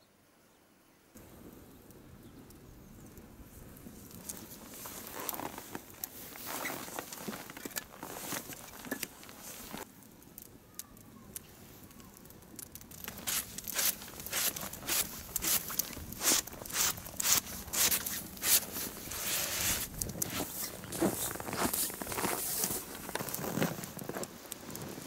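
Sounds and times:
fire crackling and snapping: 1.2 - 25.0
footsteps crunching in snow: 4.2 - 9.8, 13.0 - 25.0.

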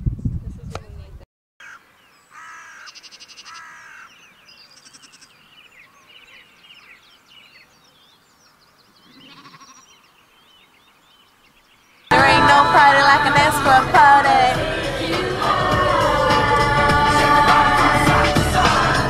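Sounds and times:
birds chirping and singing: 1.6 - 12.2
sheep and lambs bleating: 2.4 - 5.5, 9.0 - 10.1.

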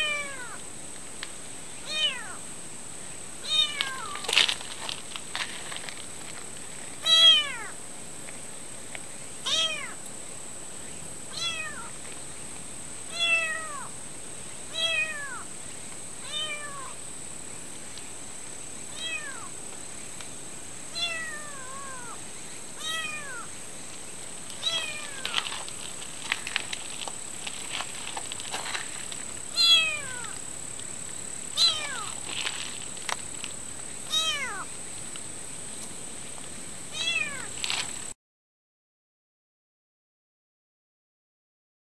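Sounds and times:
kitten meowing: 0.0 - 0.6, 1.8 - 2.4, 3.4 - 4.2, 7.0 - 7.7, 9.5 - 10.0, 11.3 - 11.9, 13.1 - 13.9, 14.7 - 15.4, 16.2 - 17.0, 19.0 - 19.5, 21.0 - 22.2, 22.8 - 23.5, 24.6 - 25.4, 29.6 - 30.4, 31.6 - 32.1, 34.1 - 34.7, 36.9 - 37.5.

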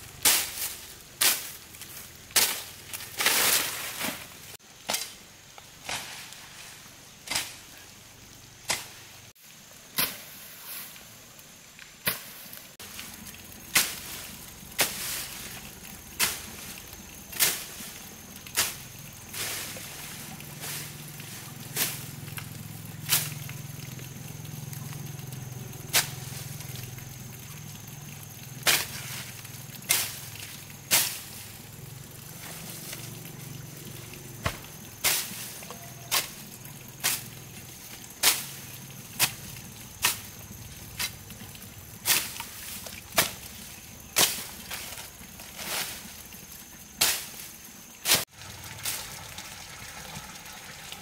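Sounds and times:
hand tool chopping earth: 13.7 - 14.1, 14.8 - 15.3, 30.9 - 31.4, 34.4 - 36.4.

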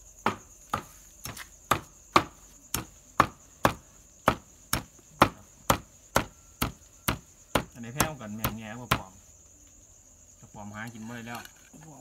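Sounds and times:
crickets chirping: 0.0 - 12.0
cleaver chopping on wooden block: 0.2 - 9.1.

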